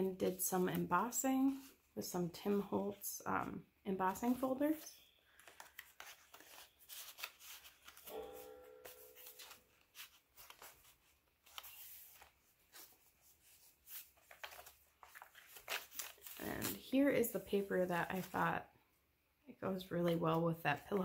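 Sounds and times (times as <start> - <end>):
paper rustling and crinkling: 4.1 - 18.5
pages turning: 5.3 - 18.4.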